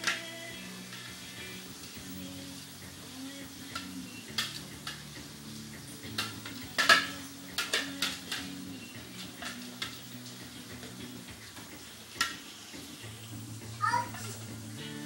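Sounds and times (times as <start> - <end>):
plastic toy pins clacking: 6.1 - 10.1.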